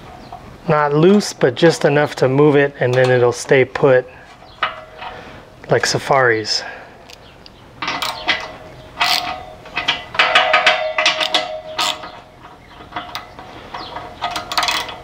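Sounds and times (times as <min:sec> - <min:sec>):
socket ratchet clicking: 0:07.1 - 0:09.4, 0:14.3 - 0:15.0.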